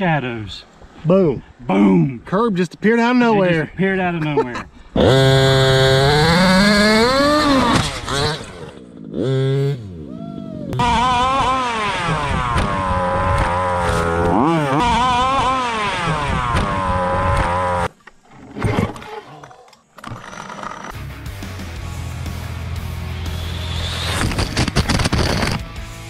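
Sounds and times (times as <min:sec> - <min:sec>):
small two-stroke engine revving: 0:05.0 - 0:10.0, 0:10.8 - 0:17.9, 0:23.4 - 0:25.6.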